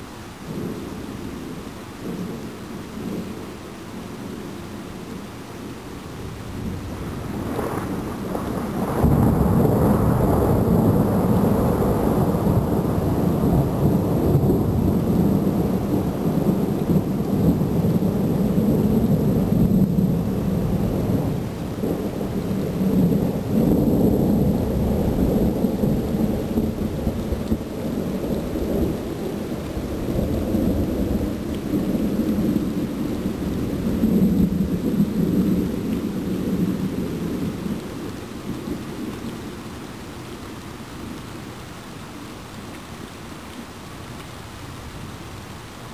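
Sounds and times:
thunder rumbling: 0:06.2 - 0:39.8.

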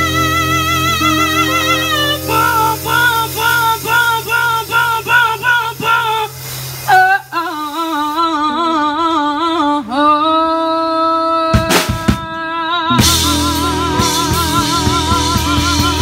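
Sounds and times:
steady bass note: 0:00.0 - 0:06.0, 0:13.0 - 0:16.0
woman singing with band: 0:00.0 - 0:16.0.

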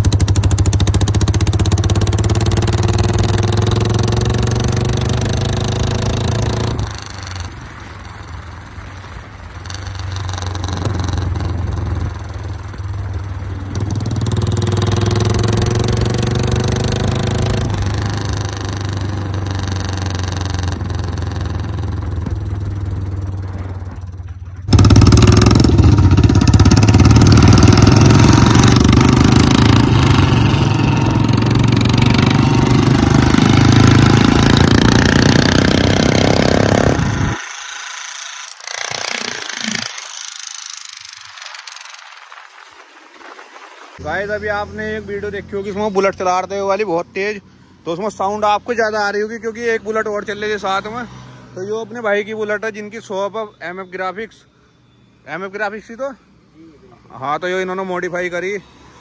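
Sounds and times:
motorcycle engine revving: 0:00.0 - 0:42.3
second motorcycle riding: 0:00.0 - 0:59.0.

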